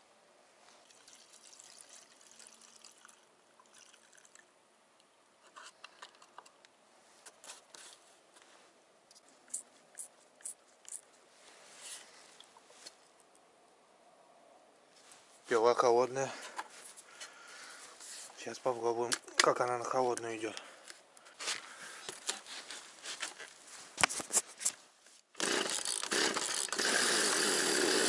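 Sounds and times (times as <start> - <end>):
liquid poured from plastic bottle: 0.8 - 4.5.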